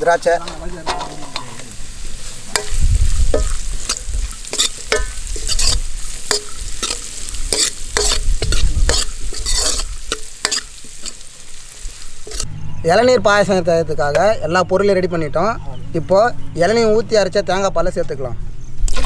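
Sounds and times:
nuts sizzling in ghee: 0.0s - 12.5s
utensil clicking and scraping pan: 2.4s - 11.3s, 12.2s - 12.5s.

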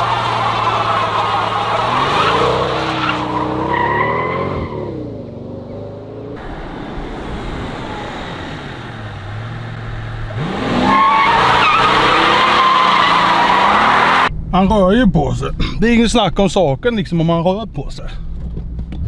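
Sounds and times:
tyres spinning: 0.0s - 4.4s
car engine revving: 0.0s - 14.4s.

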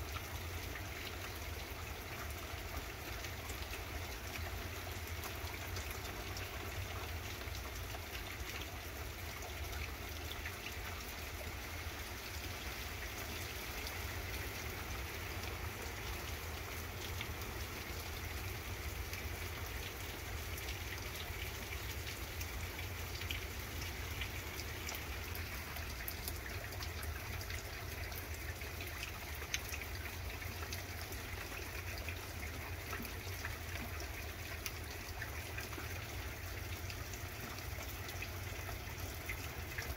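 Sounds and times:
rain on foliage and pavement: 0.0s - 39.9s.

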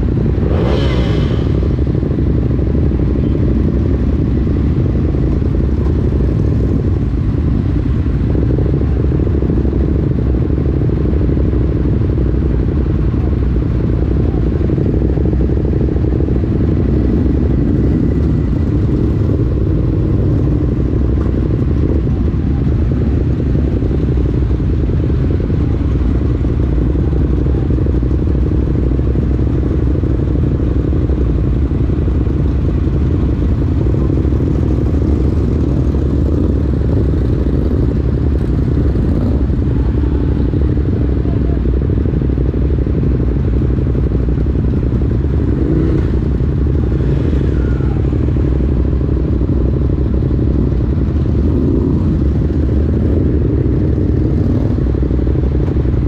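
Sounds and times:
motorcycle engine rumbling: 0.0s - 56.0s.

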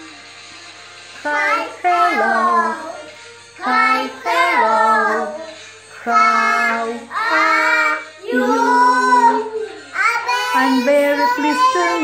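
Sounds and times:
girls singing loudly: 6.3s - 9.6s.

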